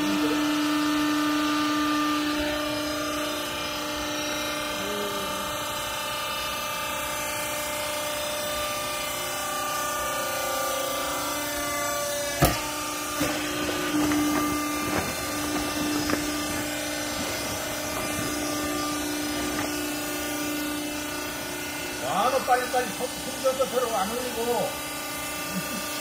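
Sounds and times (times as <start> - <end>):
hydraulic power unit humming: 0.0 - 26.0
sharp knocks: 12.4 - 15.2
handling sounds: 12.4 - 19.9.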